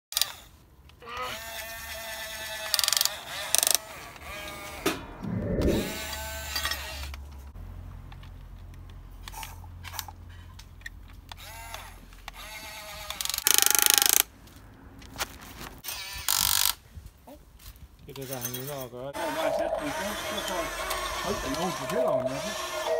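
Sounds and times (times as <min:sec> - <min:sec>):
electric motors whining: 0:19.2 - 0:22.9.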